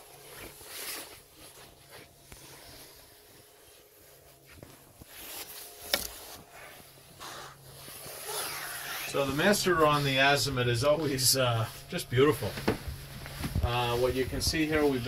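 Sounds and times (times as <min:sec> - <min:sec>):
clothing rustle: 0:00.0 - 0:15.0
footsteps: 0:09.1 - 0:15.0.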